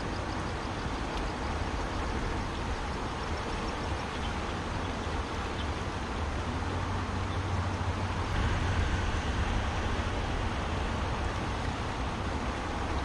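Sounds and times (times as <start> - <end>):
fast-flowing river rushing: 1.6 - 13.0
low rumble: 8.2 - 13.0.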